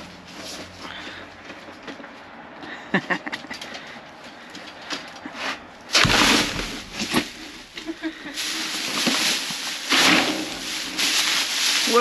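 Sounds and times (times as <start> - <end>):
plastic bags crinkling: 6.0 - 12.0.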